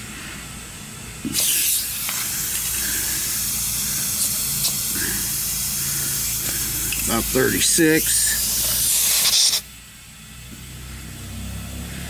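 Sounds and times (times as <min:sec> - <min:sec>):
compressed air hissing: 0:01.2 - 0:09.8.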